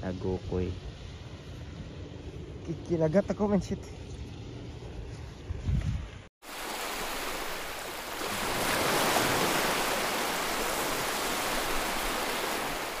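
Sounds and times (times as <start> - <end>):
ocean surf rushing: 6.4 - 13.0.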